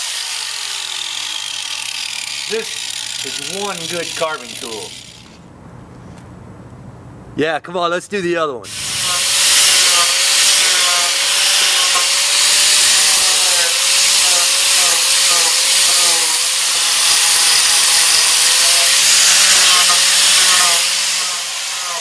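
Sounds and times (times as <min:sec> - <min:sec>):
angle grinder motor whine: 0:00.0 - 0:05.4, 0:08.7 - 0:22.0
disc grinding wood hiss: 0:00.0 - 0:05.4, 0:08.7 - 0:22.0.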